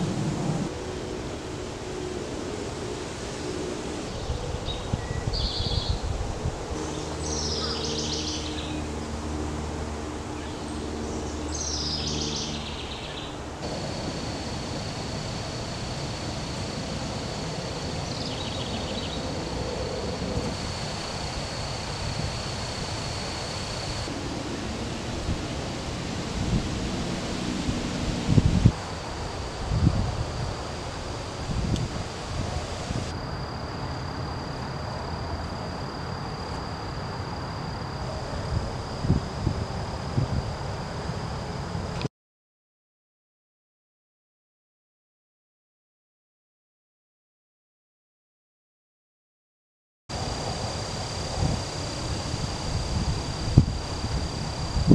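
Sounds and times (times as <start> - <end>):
wind: 0.0 - 42.1, 50.1 - 54.9
thin high-pitched whine: 1.8 - 42.1, 50.1 - 54.9
low steady hum: 5.8 - 42.0
short bird calls: 6.9 - 8.8
rustling leaves: 9.8 - 33.7, 50.1 - 54.9.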